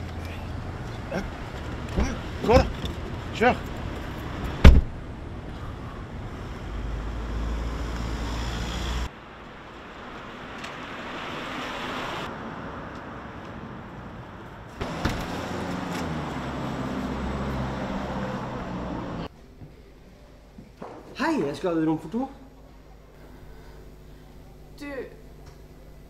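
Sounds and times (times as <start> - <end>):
traffic noise: 0.0 - 19.9
wind: 0.0 - 26.0
car door shutting: 4.6 - 5.0.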